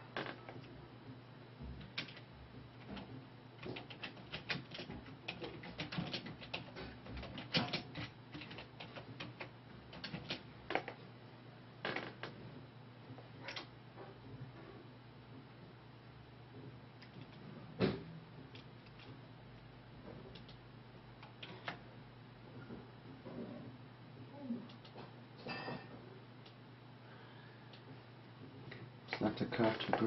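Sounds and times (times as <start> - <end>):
keyboard typing: 1.8 - 11.0, 18.5 - 19.2, 20.3 - 20.6.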